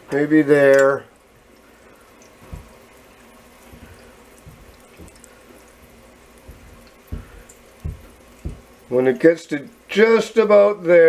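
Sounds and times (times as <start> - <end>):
tap water running into tub: 0.0 - 11.0
soft low thumps: 2.3 - 8.9.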